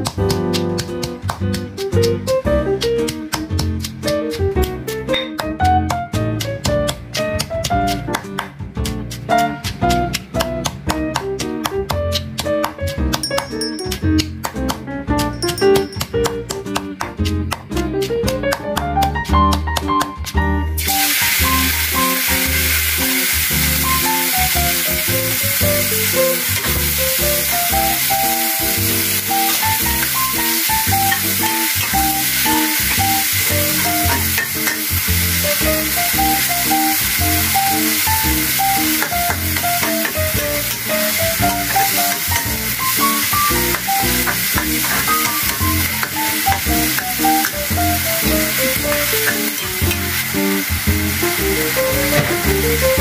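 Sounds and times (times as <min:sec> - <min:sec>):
background music: 0:00.0 - 0:53.0
paste sizzling in hot oil: 0:20.7 - 0:53.0
metal spatula scraping wok: 0:31.1 - 0:34.9.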